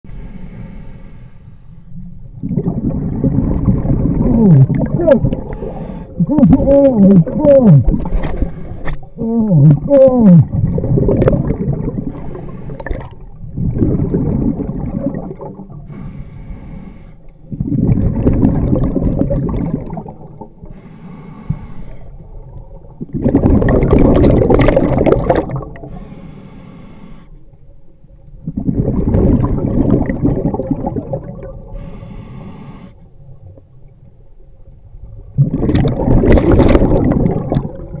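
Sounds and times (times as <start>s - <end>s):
regulator inhale hiss: 0.1s - 1.9s, 5.5s - 6.2s, 8.3s - 9.1s, 12.1s - 13.0s, 15.9s - 17.3s, 20.6s - 22.2s, 25.8s - 27.6s, 31.7s - 33.1s
exhaled bubbles rushing: 2.3s - 8.4s, 9.5s - 15.9s, 17.4s - 20.7s, 22.2s - 25.9s, 28.4s - 31.8s, 35.1s - 38.0s.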